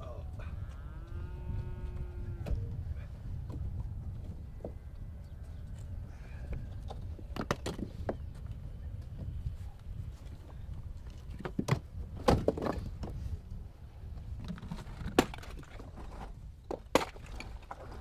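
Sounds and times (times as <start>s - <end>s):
stones clacking together: 14.4s - 18.0s.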